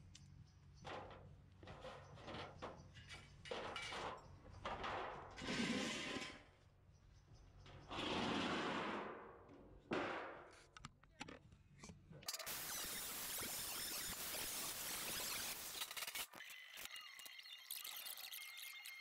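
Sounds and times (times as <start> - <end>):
sheet metal scraping on concrete: 0.9 - 6.5, 7.8 - 9.2.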